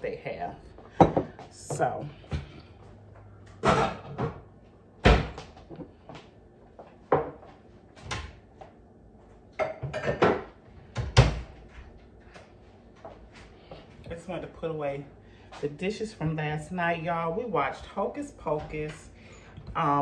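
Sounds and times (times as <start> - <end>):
dishes being put away: 3.6 - 4.4, 9.6 - 10.5.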